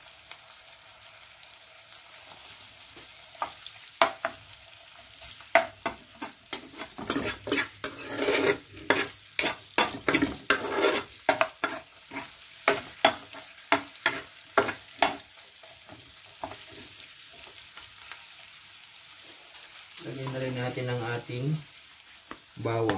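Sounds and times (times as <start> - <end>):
sizzling in hot oil: 0.0 - 22.9
utensil scraping and knocking pan: 5.6 - 15.2.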